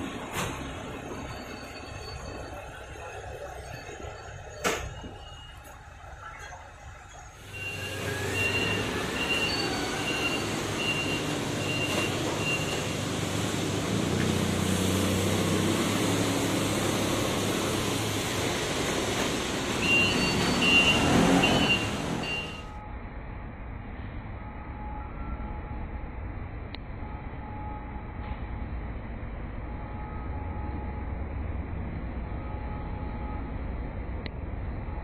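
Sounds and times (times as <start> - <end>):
forklift engine running: 6.9 - 22.8.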